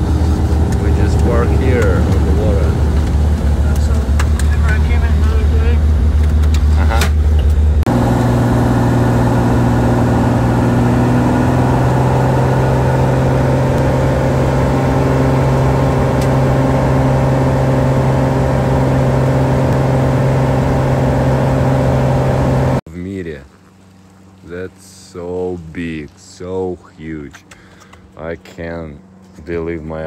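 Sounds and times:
propeller plane engine drone: 0.0 - 22.8.

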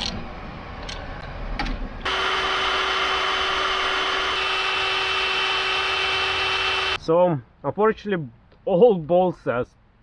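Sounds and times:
cordless drill running: 2.0 - 7.0.

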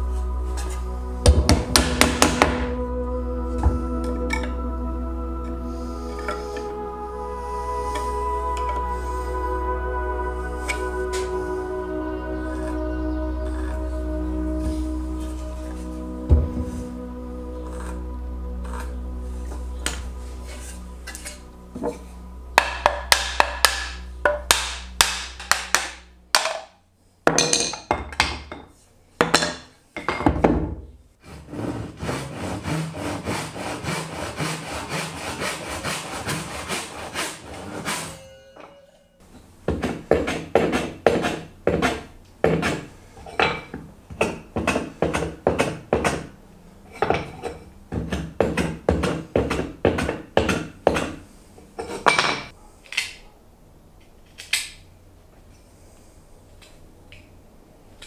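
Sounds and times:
hand tool scraping wood: 12.4 - 25.8, 31.2 - 38.6, 39.7 - 46.1.

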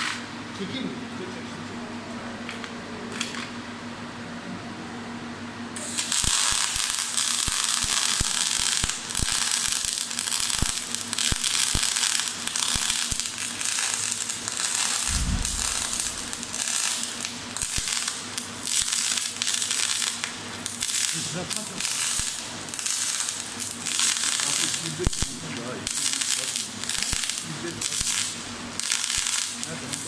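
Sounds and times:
welding arc crackling: 5.8 - 30.0
low thump: 15.1 - 16.4.

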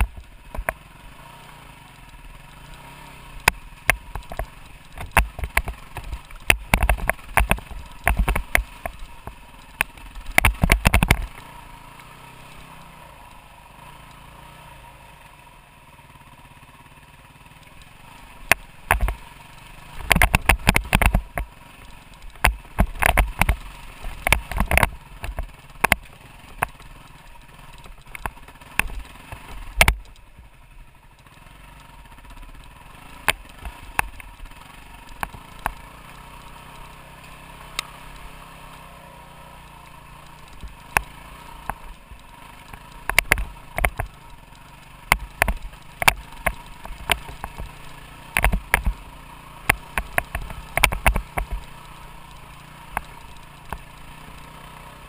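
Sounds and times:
motorcycle engine running: 0.0 - 55.0
sharp knocks and clatter: 3.4 - 11.5, 17.8 - 19.3, 19.9 - 30.2, 40.2 - 51.7.

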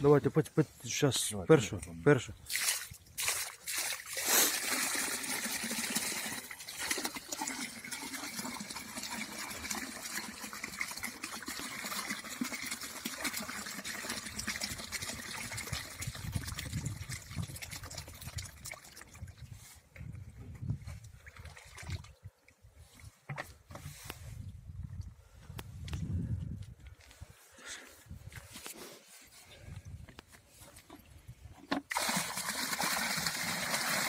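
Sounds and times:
water pouring from bucket: 2.4 - 19.7, 20.9 - 22.2, 31.7 - 34.0.

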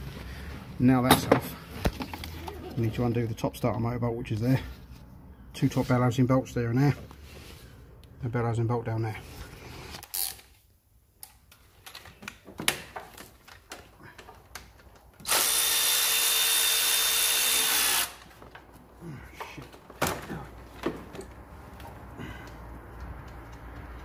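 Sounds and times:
tool handling clicks and knocks: 11.2 - 15.3, 18.3 - 24.0
cordless ratchet whining: 15.2 - 18.2.

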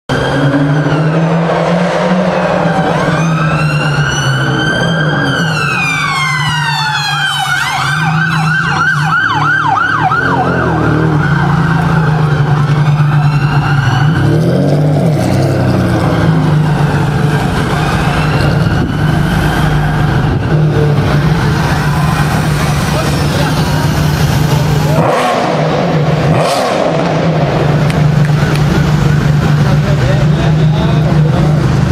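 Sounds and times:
emergency siren wailing and yelping: 0.1 - 14.7, 15.7 - 22.8
engine and traffic noise: 0.1 - 31.9.

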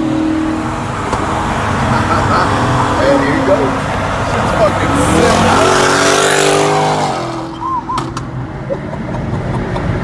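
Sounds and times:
car engine accelerating hard: 0.0 - 7.6
road noise inside car: 0.0 - 10.0.

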